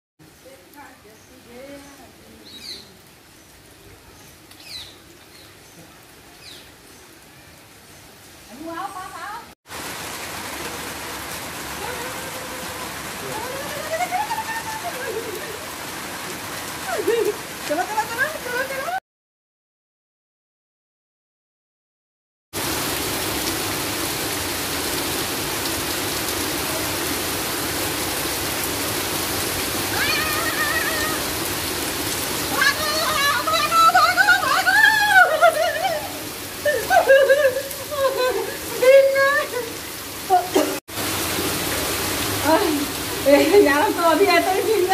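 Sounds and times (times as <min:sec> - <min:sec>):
faint outdoor hiss: 0:00.2 - 0:09.5
heavy rain on wet ground: 0:00.2 - 0:19.0, 0:22.6 - 0:44.9.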